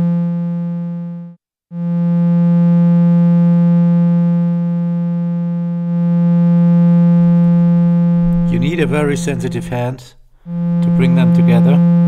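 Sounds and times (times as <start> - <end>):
low synthesizer tone: 2.9 - 12.0.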